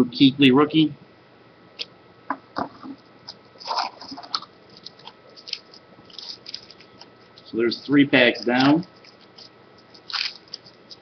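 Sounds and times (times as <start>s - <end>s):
wrapper crinkling: 3.3s - 11.0s.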